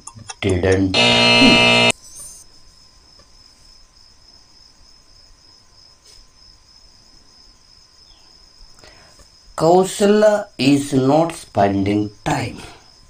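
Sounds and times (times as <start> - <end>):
crickets chirping: 1.4 - 13.0.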